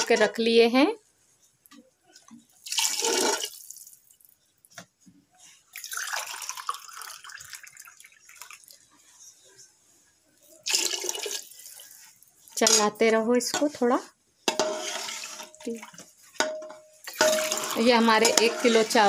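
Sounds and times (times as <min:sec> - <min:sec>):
water pouring and splashing: 0:02.6 - 0:04.2, 0:05.7 - 0:08.8, 0:14.8 - 0:16.0, 0:17.0 - 0:19.0.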